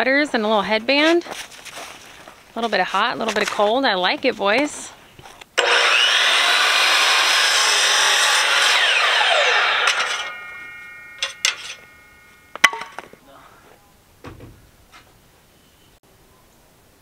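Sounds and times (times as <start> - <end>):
miter saw cutting wood: 5.6 - 12.6
faint ringing: 9.5 - 13.1
knocks: 12.6 - 13.1, 14.2 - 14.8.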